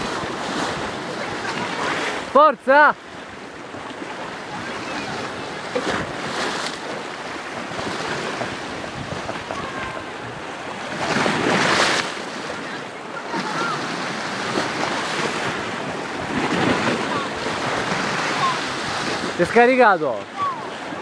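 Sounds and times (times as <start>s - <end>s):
sea waves splashing: 0.0s - 21.0s
wind buffeting microphone: 3.6s - 19.4s.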